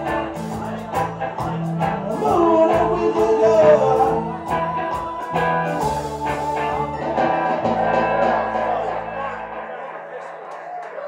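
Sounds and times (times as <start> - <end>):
person singing: 0.0 - 9.2
live reggae band playing: 0.0 - 10.2.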